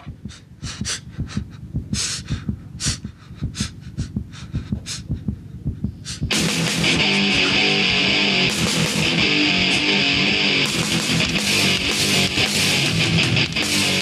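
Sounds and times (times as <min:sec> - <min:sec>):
fast low thumping: 0:00.0 - 0:07.2
guitar music: 0:06.3 - 0:14.0.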